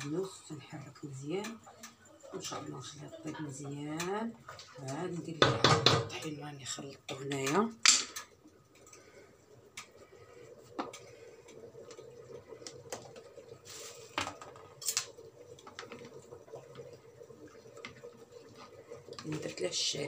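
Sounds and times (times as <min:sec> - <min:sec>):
metal pots and utensils clinking: 0:07.1 - 0:09.0, 0:12.9 - 0:16.1.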